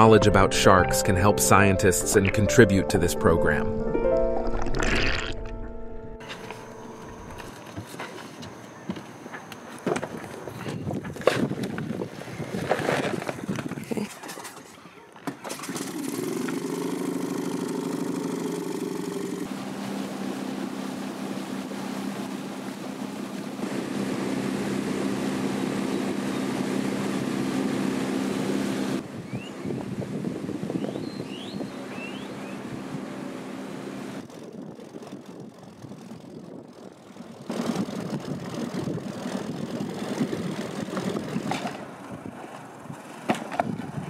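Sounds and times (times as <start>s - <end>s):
outboard motor running: 4.3s - 9.2s, 15.5s - 44.0s
rush of wind and water: 19.4s - 36.5s, 37.5s - 44.0s.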